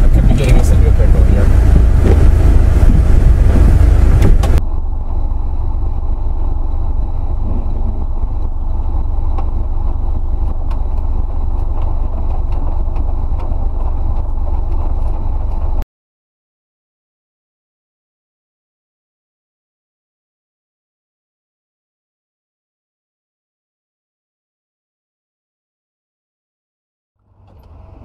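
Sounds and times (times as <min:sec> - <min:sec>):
car cabin rumble: 0:00.0 - 0:15.8.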